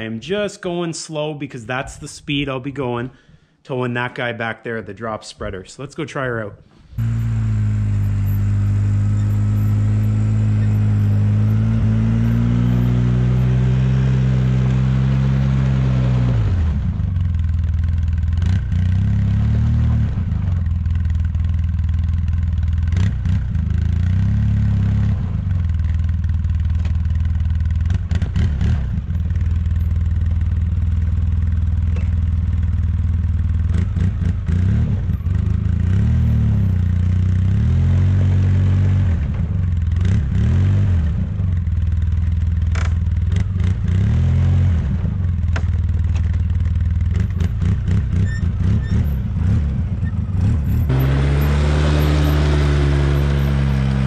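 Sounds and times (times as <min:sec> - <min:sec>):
atv engine revving: 0:06.8 - 0:54.0
clicks and clatter: 0:42.7 - 0:43.1, 0:45.5 - 0:48.2.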